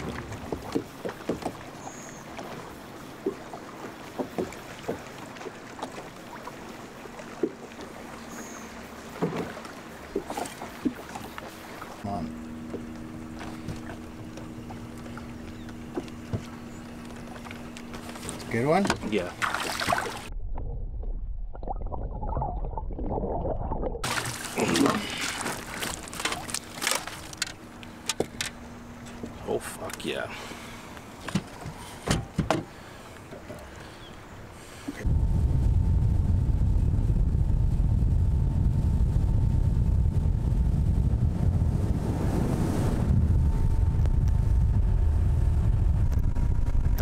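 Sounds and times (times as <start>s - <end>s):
water sloshing: 0.0s - 20.3s, 21.5s - 35.0s
waves lapping against boat hull: 0.0s - 20.3s, 24.0s - 35.1s
fish thrashing and splashing: 19.4s - 20.3s, 22.1s - 28.4s
low rumble: 20.2s - 24.2s, 35.0s - 47.0s.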